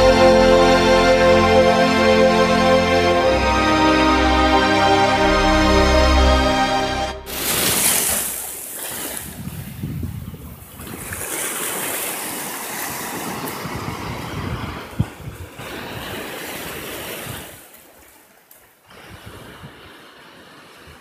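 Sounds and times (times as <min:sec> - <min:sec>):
sea waves washing over rocks: 0:07.3 - 0:09.5.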